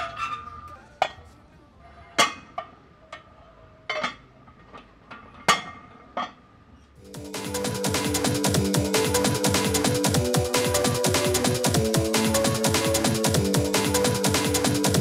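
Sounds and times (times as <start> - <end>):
electronic music with steady beat: 7.0 - 15.0.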